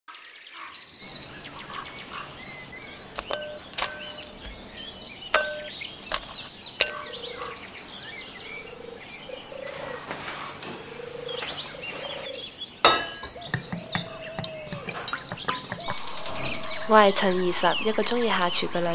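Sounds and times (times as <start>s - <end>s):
birds chirping: 0.2s - 18.9s
kitchen clinks: 5.4s - 5.8s, 12.8s - 13.4s.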